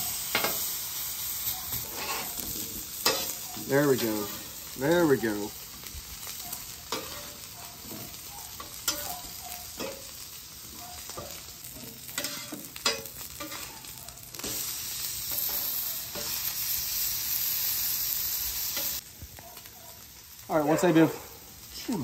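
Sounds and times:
potatoes sizzling on a griddle: 0.0s - 22.0s
steaks searing on a griddle: 0.0s - 22.0s
metal spatula scraping and tapping: 0.3s - 0.6s, 1.7s - 3.4s, 6.9s - 9.2s, 9.8s - 10.2s, 11.1s - 13.8s.

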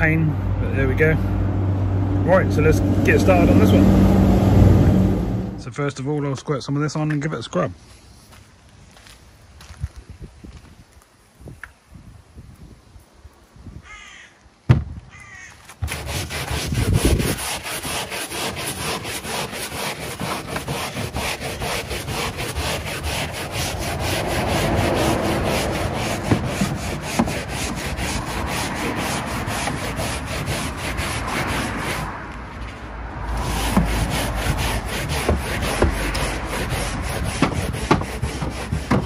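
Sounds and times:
brush scrubbing carpet: 15.8s - 32.1s, 33.4s - 39.0s.

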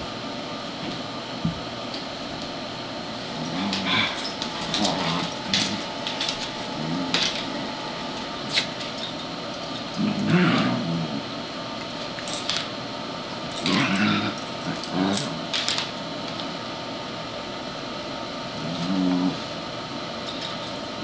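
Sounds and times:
dogs growling: 3.1s - 11.4s, 13.5s - 15.6s, 18.5s - 19.6s
dogs scuffling: 3.3s - 10.0s.

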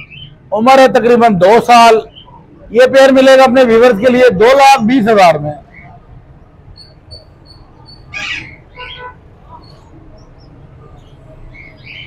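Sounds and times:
small bird chirping: 6.7s - 12.0s
bird squawks: 6.8s - 9.9s.

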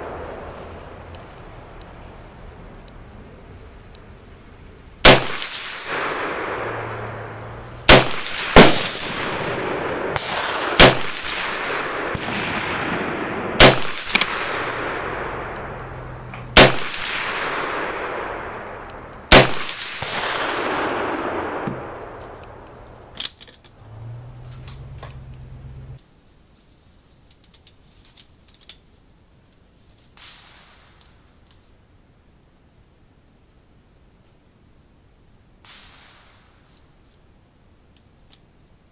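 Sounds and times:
rifle shots: 5.0s - 22.6s
rifle handling clicks: 22.2s - 23.8s, 27.2s - 28.9s.

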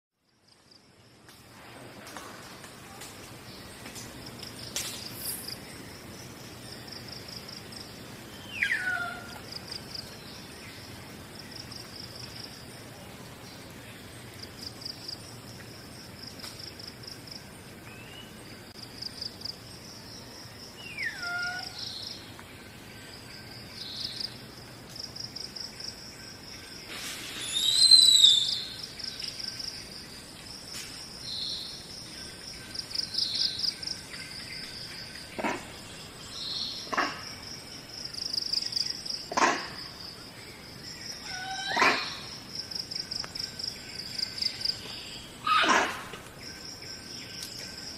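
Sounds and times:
bird calls: 8.3s - 10.8s, 20.8s - 24.4s, 40.9s - 42.4s
downward-sliding bird whistles: 27.4s - 28.6s.

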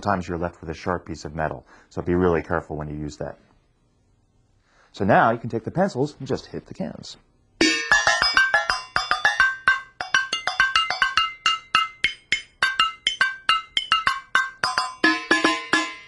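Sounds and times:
tin cans tapped with pencils: 8.0s - 15.9s.

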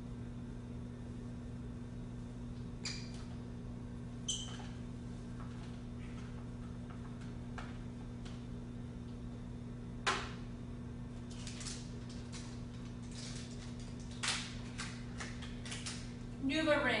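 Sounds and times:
low electrical hum: 0.0s - 17.0s
plastic packaging crinkling: 11.3s - 16.1s.

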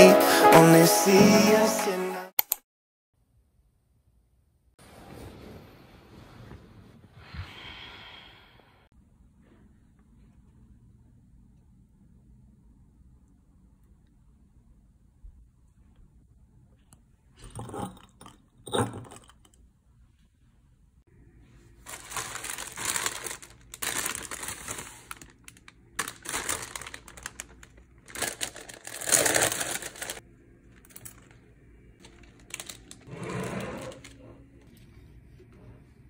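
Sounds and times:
stems rustling: 21.8s - 30.2s
plastic sleeve crinkling: 21.8s - 33.1s.

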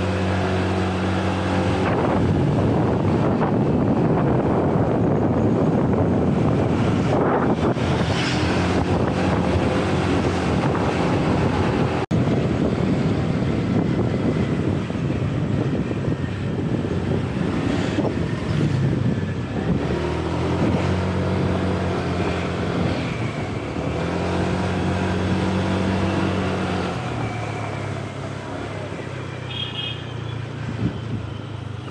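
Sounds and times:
wind on microphone: 0.0s - 29.3s, 30.4s - 31.9s.

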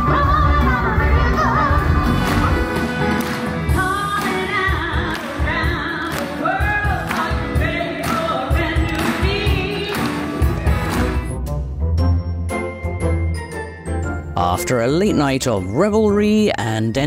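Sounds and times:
woman singing: 0.0s - 2.5s, 3.7s - 10.4s
live band playing: 0.0s - 13.8s
audience clapping: 2.2s - 11.2s.

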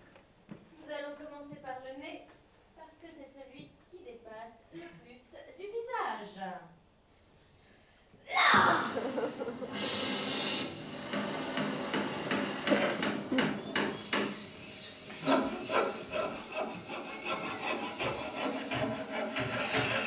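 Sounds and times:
knocking and scraping: 10.9s - 20.0s
high wavering squeal: 13.6s - 20.0s.

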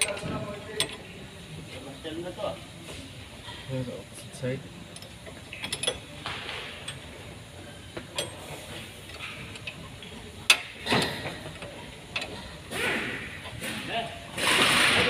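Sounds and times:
hand tools clicking and knocking metal: 5.0s - 6.2s, 10.4s - 13.8s.

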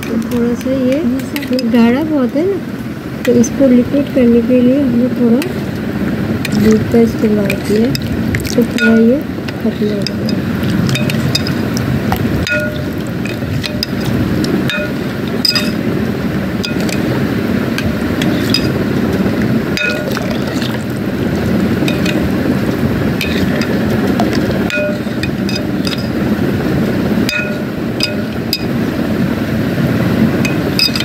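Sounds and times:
spoon clinking against bowl: 6.4s - 11.8s, 12.4s - 15.8s, 16.6s - 17.1s, 18.2s - 18.8s, 19.8s - 20.9s, 21.8s - 22.3s, 23.2s - 26.2s, 27.3s - 28.7s, 30.4s - 31.0s
spoon churning yogurt: 6.4s - 15.8s, 16.6s - 17.1s, 17.8s - 19.2s, 19.8s - 21.0s, 23.2s - 26.2s.

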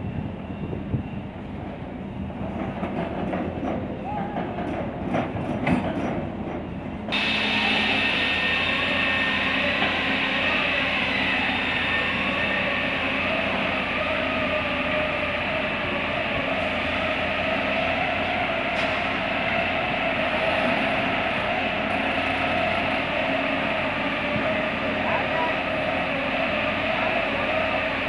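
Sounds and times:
excavator diesel engine: 7.1s - 28.0s
hydraulic whine: 7.1s - 28.0s.

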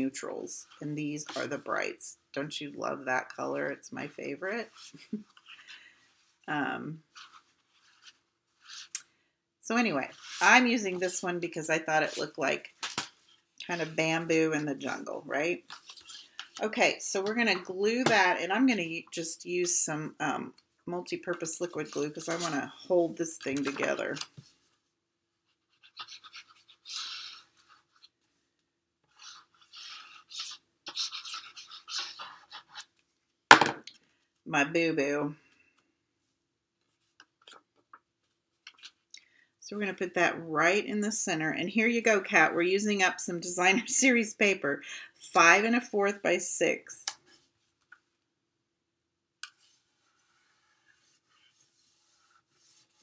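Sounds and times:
glue tip scratching on paper: 25.6s - 28.1s, 29.1s - 32.9s
hands rubbing cardstock: 29.1s - 32.9s.

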